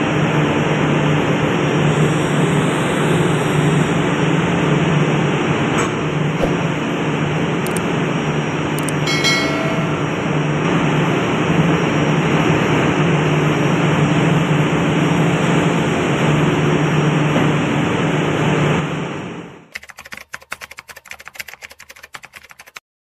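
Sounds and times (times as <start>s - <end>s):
engine room machinery drone: 0.0s - 19.8s
metallic ring: 9.0s - 10.5s.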